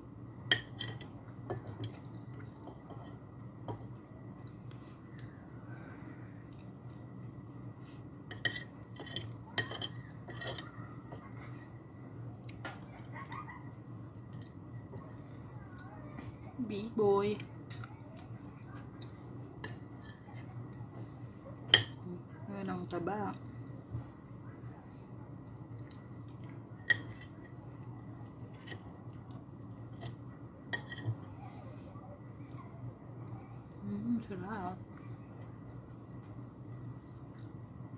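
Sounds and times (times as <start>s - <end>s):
cutlery clinking on a plate: 0.5s - 2.0s, 8.3s - 11.2s, 21.7s - 22.0s, 26.9s - 27.4s, 29.9s - 31.2s.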